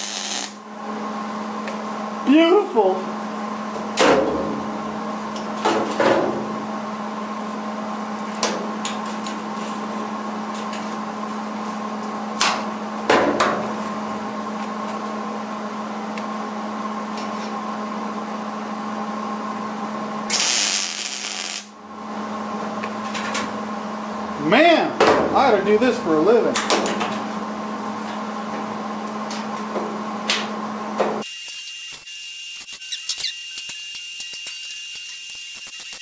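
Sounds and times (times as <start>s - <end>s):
welder arc crackling: 0.0s - 0.6s, 20.3s - 21.7s, 31.2s - 36.0s
steady hum: 0.0s - 31.2s.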